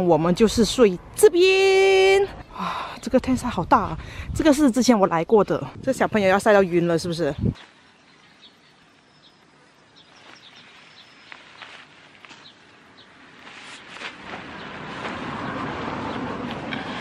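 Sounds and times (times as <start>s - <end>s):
rustling on a picnic blanket: 7.5s - 17.0s.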